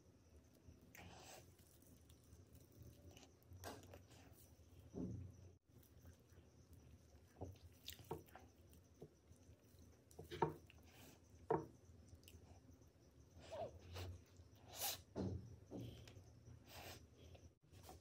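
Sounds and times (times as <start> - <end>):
wet squishing and chewing: 7.5 - 8.5.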